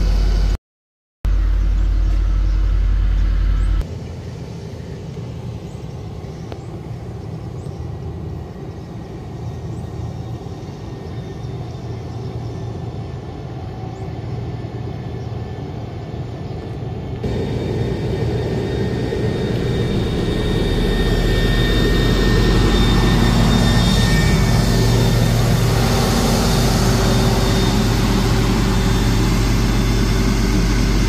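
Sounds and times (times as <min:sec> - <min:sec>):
heavy diesel engine running: 0:16.6 - 0:31.0.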